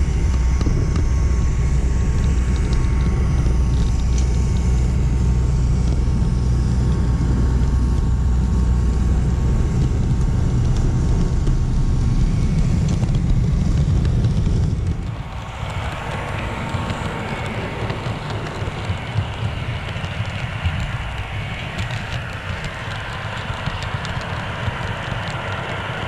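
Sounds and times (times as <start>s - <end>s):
faint steady whine: 0.0s - 26.0s
model train rumble: 0.0s - 26.0s.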